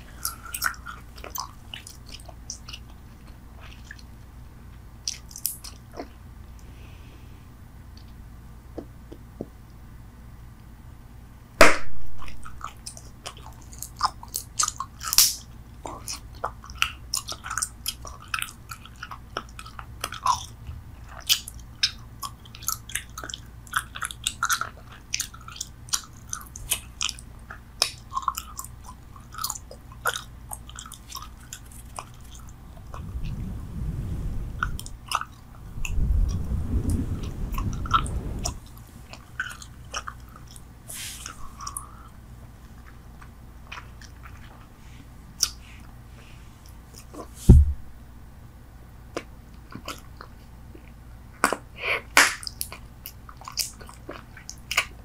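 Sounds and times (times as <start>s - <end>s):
gum chewing clicks and smacks: 0.1s - 4.1s, 12.2s - 33.0s, 39.1s - 40.7s, 41.5s - 44.7s, 45.4s - 45.6s, 49.1s - 51.6s, 52.2s - 55.0s
low rumble: 32.7s - 39.2s, 47.4s - 48.1s.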